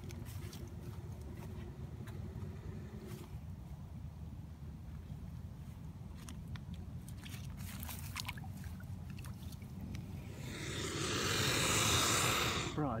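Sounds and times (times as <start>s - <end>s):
low outdoor rumble: 0.0s - 13.0s
loud hiss: 10.3s - 13.0s.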